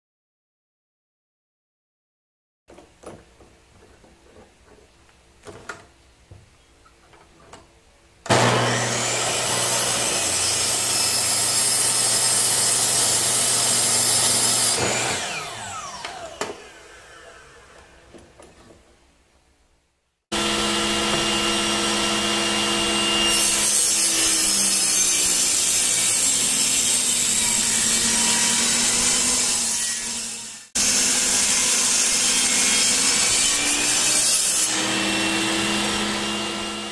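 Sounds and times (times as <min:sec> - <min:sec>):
mitre saw running: 0:08.3 - 0:17.9, 0:20.3 - 0:36.9
table saw ripping boards: 0:08.3 - 0:18.4, 0:20.3 - 0:36.9.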